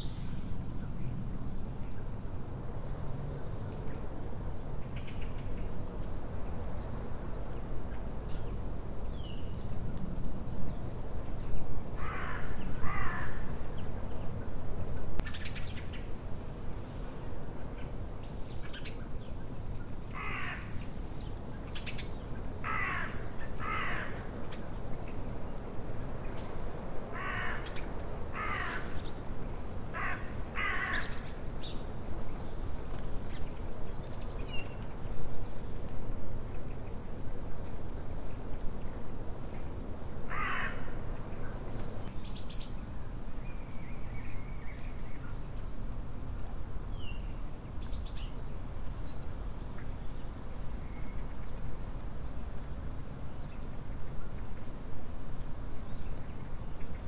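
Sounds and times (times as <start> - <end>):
low background noise: 0.0 - 57.0
songbirds chirping: 0.0 - 57.0
crows cawing: 12.0 - 13.5, 20.2 - 20.7, 22.6 - 24.2, 27.1 - 27.8, 28.4 - 29.0, 29.9 - 31.2, 40.3 - 40.9.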